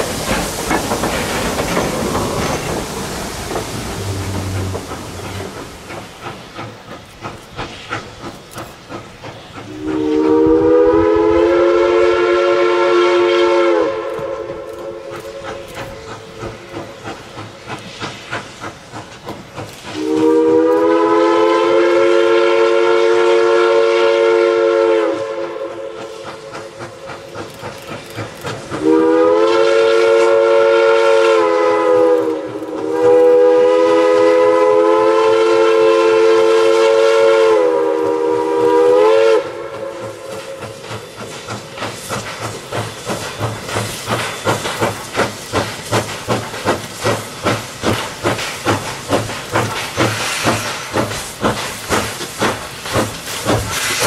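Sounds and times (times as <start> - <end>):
steam locomotive exhaust chuffing: 0.0 - 54.0
steam locomotive chime whistle: 3.9 - 5.6, 9.6 - 16.5, 20.0 - 26.9, 28.8 - 40.9.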